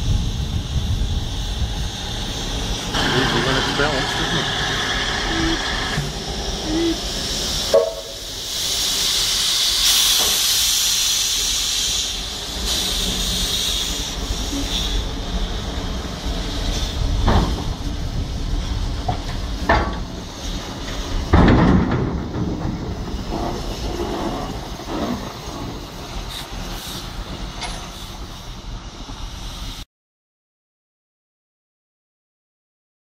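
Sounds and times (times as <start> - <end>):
locomotive mechanical rumble: 0.0 - 29.8
steam locomotive hissing steam: 0.0 - 29.9
heavy clunks: 17.2 - 17.9, 19.0 - 20.1, 20.8 - 25.8.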